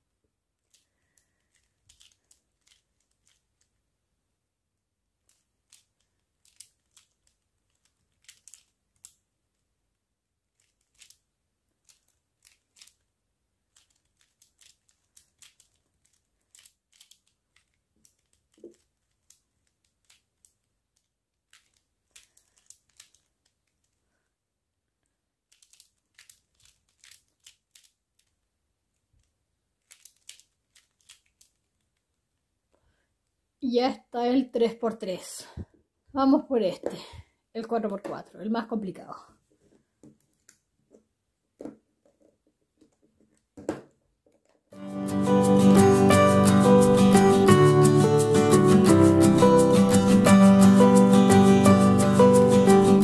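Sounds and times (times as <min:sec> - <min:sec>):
plastic puzzle clicking: 0:00.6 - 0:03.6, 0:10.6 - 0:11.2, 0:13.7 - 0:23.8, 0:25.5 - 0:28.4, 0:29.8 - 0:31.6.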